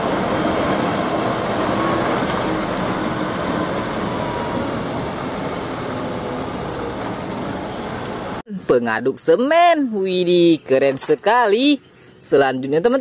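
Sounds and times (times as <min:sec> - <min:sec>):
diesel truck engine running: 0:00.0 - 0:08.4.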